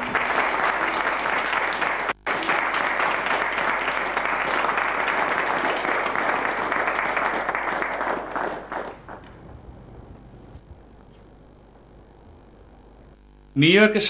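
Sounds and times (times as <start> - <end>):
people clapping: 0.0 - 9.4.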